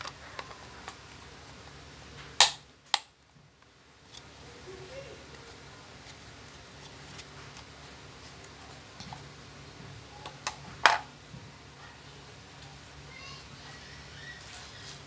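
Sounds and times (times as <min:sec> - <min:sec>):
faint steady hum: 0:00.0 - 0:15.0
sharp plastic snap: 0:02.4 - 0:03.1.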